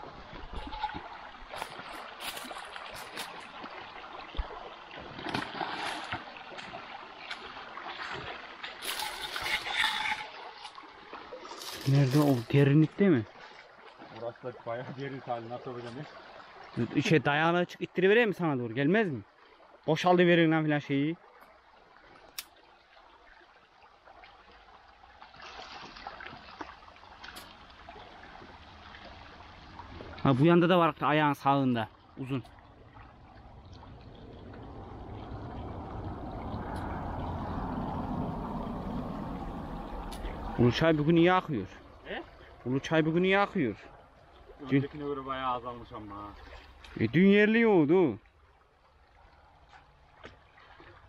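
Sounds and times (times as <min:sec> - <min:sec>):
running water: 0:00.0 - 0:51.0
splashing in a stream: 0:00.0 - 0:51.0.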